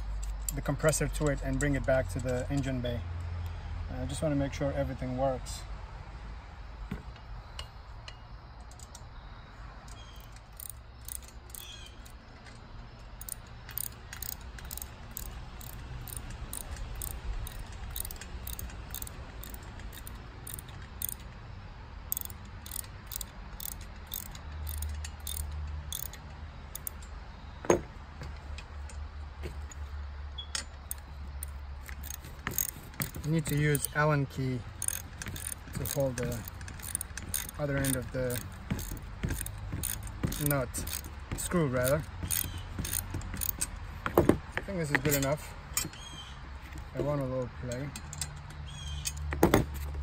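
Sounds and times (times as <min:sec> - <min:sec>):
metallic clicking of hand tool: 0:09.9 - 0:21.4, 0:22.1 - 0:29.0, 0:30.4 - 0:34.0, 0:34.7 - 0:49.9.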